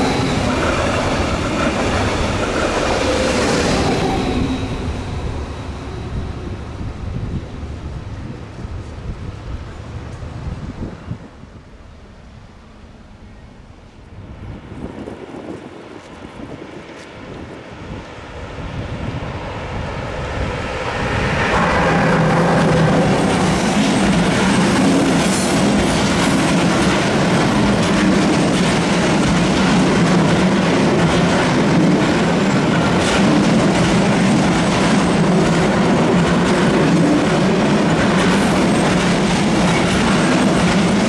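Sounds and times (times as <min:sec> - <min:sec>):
freight train rumbling past: 0:00.0 - 0:41.0.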